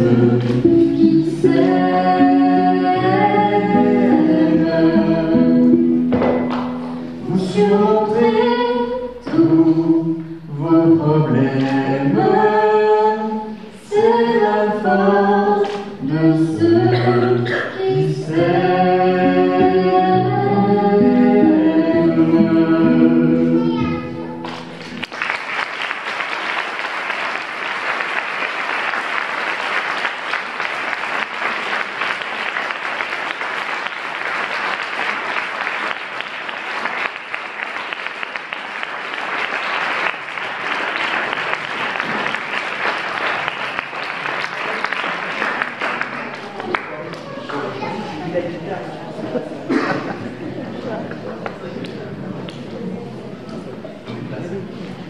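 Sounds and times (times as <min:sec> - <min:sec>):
a cappella harmony singing: 0:00.0 - 0:06.2, 0:07.1 - 0:23.8
crowd applause: 0:24.4 - 0:47.8.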